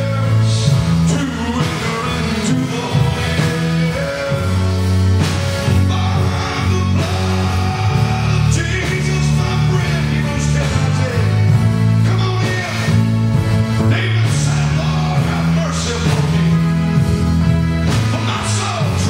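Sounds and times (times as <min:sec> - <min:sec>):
drum kit: 0:00.0 - 0:19.0
man singing: 0:00.0 - 0:19.0
sustained low accompaniment notes: 0:00.0 - 0:19.0.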